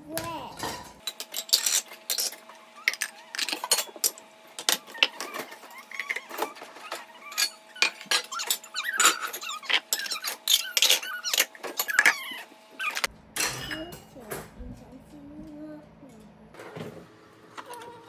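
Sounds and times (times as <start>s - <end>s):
faint steady hum: 0.0s - 18.0s
household items clicking and clinking: 0.2s - 14.0s.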